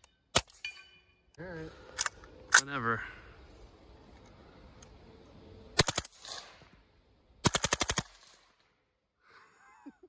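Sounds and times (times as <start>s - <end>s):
suppressed rifle rapid fire: 5.8s - 6.6s, 7.4s - 8.6s.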